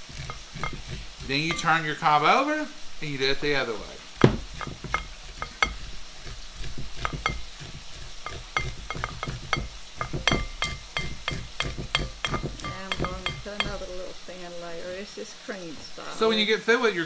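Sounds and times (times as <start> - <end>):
knife scraping corn cob: 0.0 - 2.4, 4.1 - 12.4.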